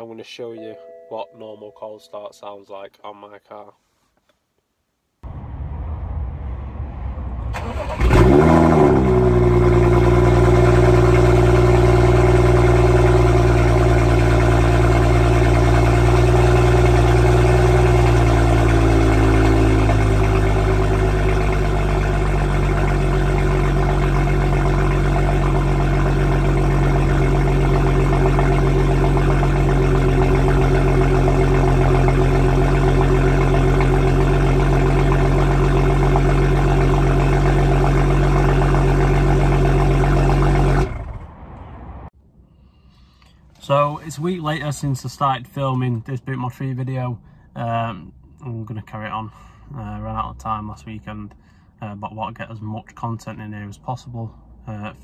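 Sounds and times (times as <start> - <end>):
car engine cold start idling: 7.5 - 41.3.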